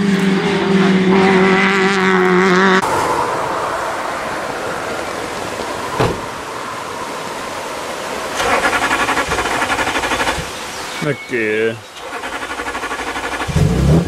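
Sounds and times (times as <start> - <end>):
race car engine at high revs: 0.0 - 3.5, 8.3 - 10.8, 12.0 - 14.0
thump: 6.0 - 6.3
rough noisy engine: 8.4 - 10.5, 12.0 - 14.0.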